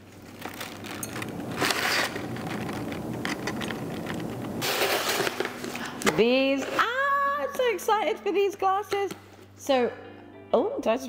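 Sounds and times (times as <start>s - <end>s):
wrapping rustle: 0.0s - 5.8s
glasses clicking and rattling: 0.1s - 4.6s.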